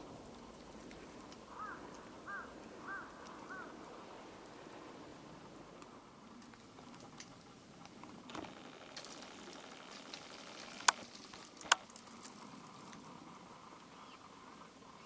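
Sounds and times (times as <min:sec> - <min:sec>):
twigs snapping and crackling: 0:08.9 - 0:13.0.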